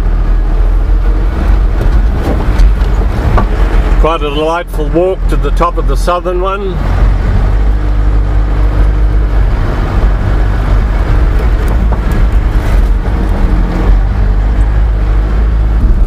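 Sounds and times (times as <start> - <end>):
vehicle engine and tyre rumble: 0.0 - 16.0.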